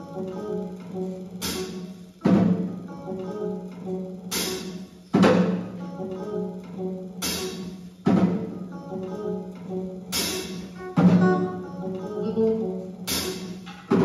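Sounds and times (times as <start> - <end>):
drum and cymbal crash: 1.4 - 2.7, 4.3 - 5.7, 7.2 - 8.5, 10.1 - 11.3, 13.1 - 14.0.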